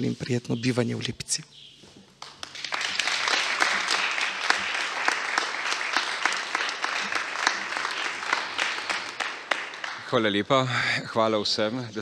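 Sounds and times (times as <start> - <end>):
audience applauding: 2.2 - 10.7.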